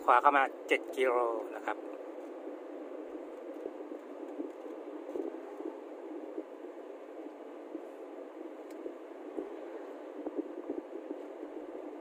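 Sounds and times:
vehicle road and engine noise: 0:00.0 - 0:12.0.

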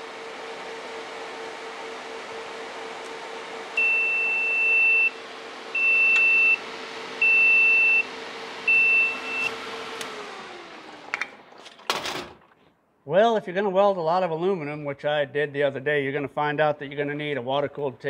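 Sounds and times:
cooling fans humming: 0:00.0 - 0:12.6
buzzer alarm beeping: 0:03.8 - 0:09.5.

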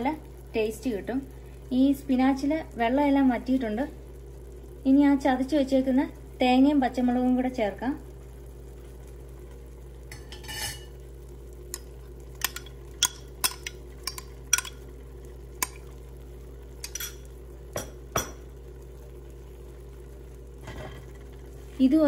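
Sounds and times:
steady low hum: 0:00.0 - 0:22.0
metal spoon tapping and scraping: 0:12.4 - 0:14.8, 0:16.8 - 0:18.4.

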